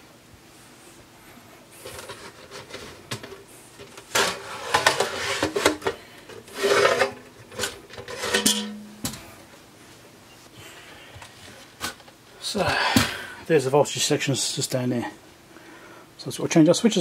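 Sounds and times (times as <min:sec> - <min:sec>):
metal cover scraping: 0:03.9 - 0:09.1.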